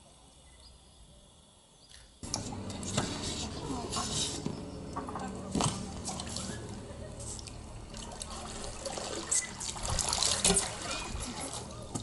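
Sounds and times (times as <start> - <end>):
lake water splashing and dripping: 4.9 - 12.0.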